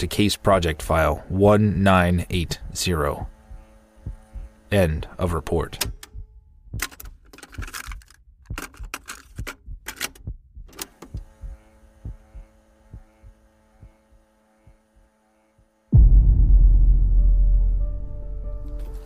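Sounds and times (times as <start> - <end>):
electrical hum: 0.0 - 19.0
keys typing: 6.8 - 12.3.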